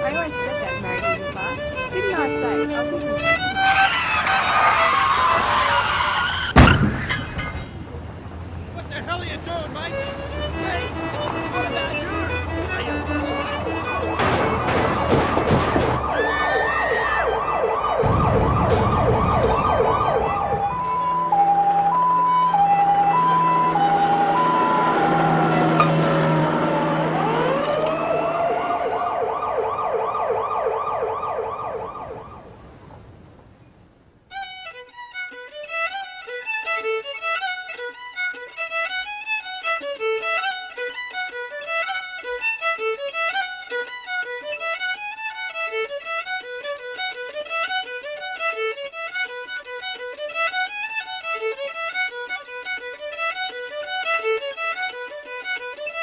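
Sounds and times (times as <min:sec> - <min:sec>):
fast fiddle tune: 0:00.0 - 0:06.5, 0:08.8 - 0:28.7, 0:34.3 - 0:56.0
pulsing tone with falling glide: 0:16.1 - 0:31.7.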